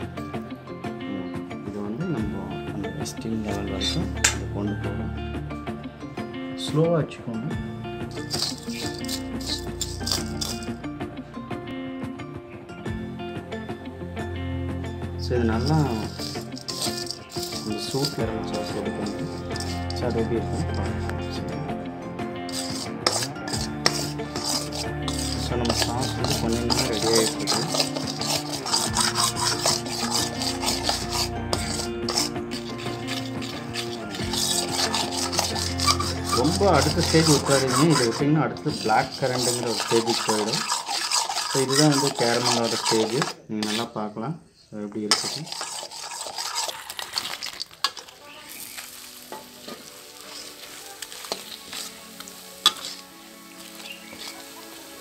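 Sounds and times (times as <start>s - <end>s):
background music held notes: 0.0s - 42.8s, 48.6s - 55.0s
spoon scraping metal pan: 8.1s - 10.8s, 15.5s - 21.8s, 22.5s - 44.0s, 44.9s - 55.0s.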